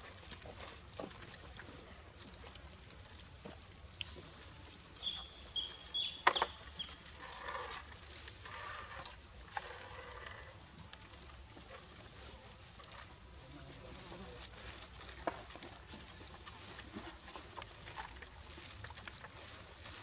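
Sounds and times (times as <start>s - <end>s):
macaques squeaking: 3.4s - 11.1s, 12.9s - 20.0s
soft scuffling: 10.8s - 20.0s.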